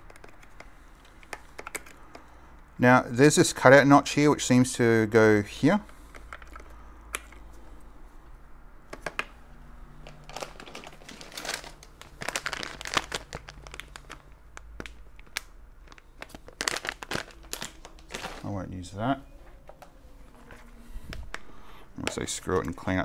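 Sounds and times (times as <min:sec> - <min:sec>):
crinkly rustles: 0:10.0 - 0:18.7.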